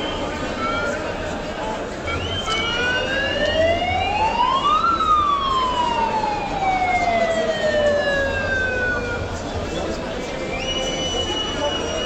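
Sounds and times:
siren wailing: 2.2 - 9.4.

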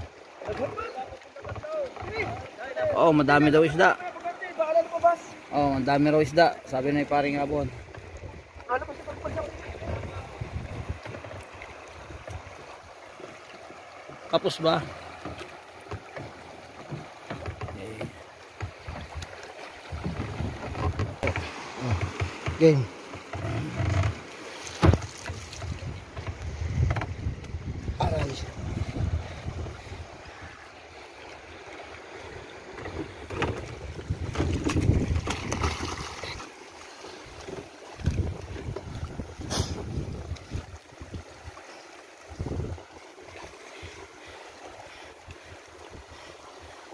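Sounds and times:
water washing around boat: 0.0 - 46.9
knocks on boat hull: 24.8 - 28.4
wind buffeting: 25.6 - 30.6, 33.0 - 36.0, 38.0 - 41.2, 42.4 - 42.9.

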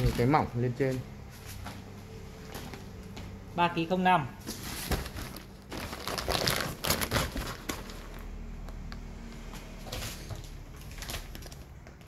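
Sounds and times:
plastic bags crinkling: 4.4 - 8.6, 9.6 - 12.0.

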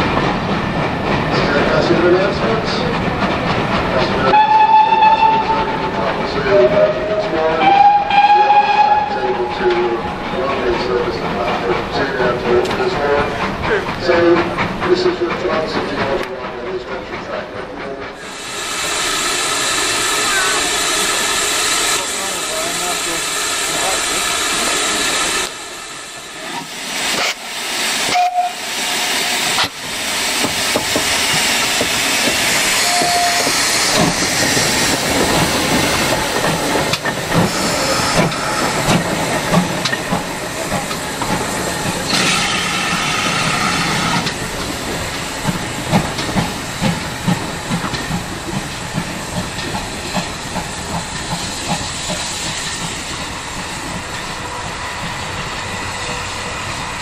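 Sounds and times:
steam locomotive exhaust beats: 0.0 - 57.0
steam whistle: 4.3 - 5.7, 6.8 - 9.2, 28.1 - 28.6, 32.8 - 33.5
steam hissing: 17.2 - 57.0.

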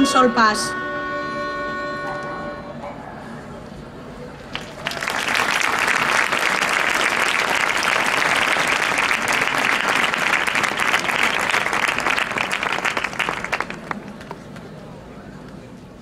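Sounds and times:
crowd applauding: 4.4 - 14.7.

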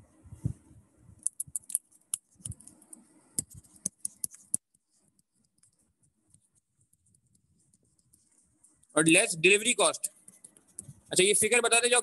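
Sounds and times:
stylus tapping on tablet: 3.4 - 5.8.

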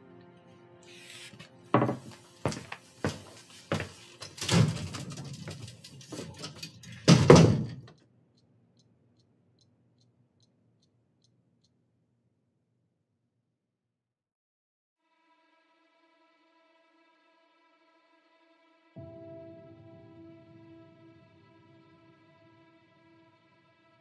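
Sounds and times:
wristwatch ticking: 7.9 - 11.8.

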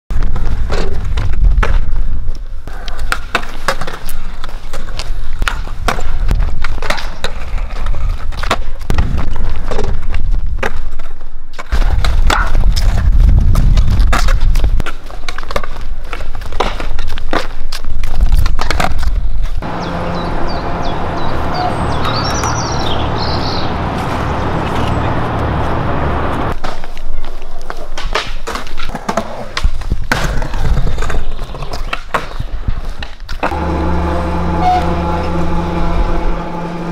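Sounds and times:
skateboards rolling on concrete: 0.1 - 34.8
outdoor background noise: 0.1 - 36.9
skateboard clacks: 0.3 - 19.6, 26.5 - 33.6.

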